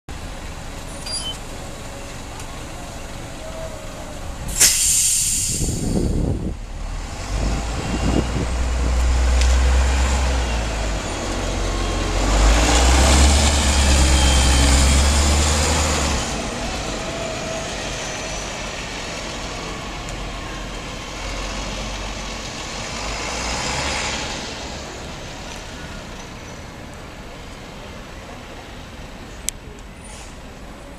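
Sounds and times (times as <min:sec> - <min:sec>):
bus engine accelerating: 0:00.1 - 0:30.9
compressed air hiss: 0:04.5 - 0:06.4.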